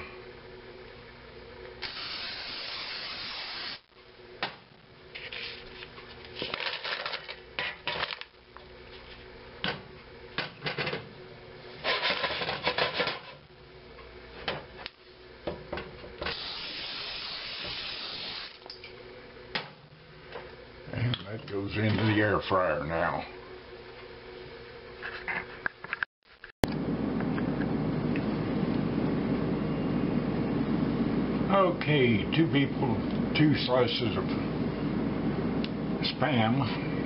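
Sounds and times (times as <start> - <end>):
oil sprayer hissing: 1.8 - 3.8, 16.2 - 18.6.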